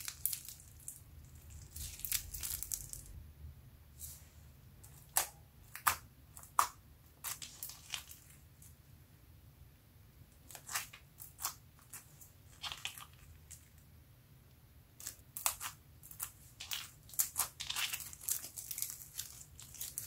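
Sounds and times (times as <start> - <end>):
slime crunchy crackles: 0.0 - 3.2, 10.5 - 13.6, 15.0 - 20.0.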